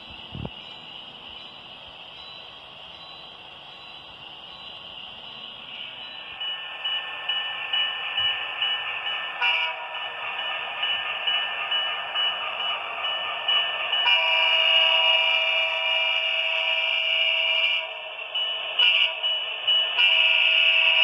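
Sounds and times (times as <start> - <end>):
model locomotive whining: 0.0 - 21.0
model train horn chord: 9.4 - 9.8, 14.0 - 17.9, 20.0 - 21.0.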